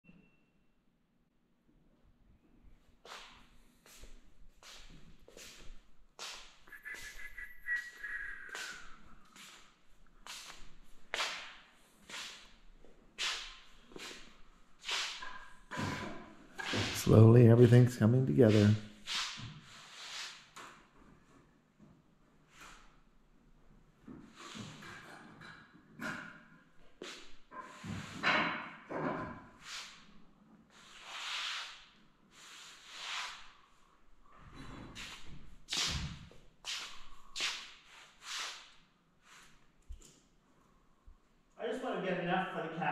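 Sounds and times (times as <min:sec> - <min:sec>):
soft scuffing swishes: 0:03.1 - 0:07.3, 0:10.2 - 0:12.5, 0:35.0 - 0:38.7.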